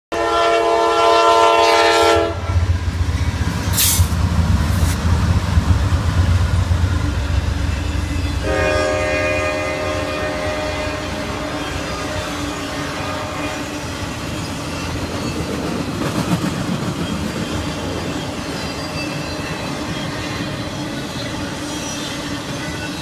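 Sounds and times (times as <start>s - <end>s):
locomotive horn chord: 0.1s - 2.6s, 8.4s - 13.8s
wheels on rail: 1.7s - 23.0s.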